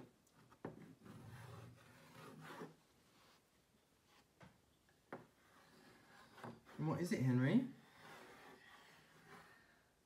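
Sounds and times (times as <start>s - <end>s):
chalk scraping on blackboard: 0.7s - 3.4s, 5.4s - 9.6s.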